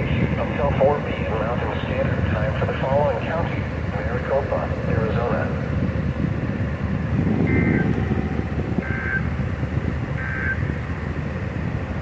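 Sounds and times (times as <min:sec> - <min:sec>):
low rumble of background noise: 0:00.0 - 0:12.0
buzzy two-pitch digital data tones: 0:07.4 - 0:07.9, 0:10.2 - 0:10.6.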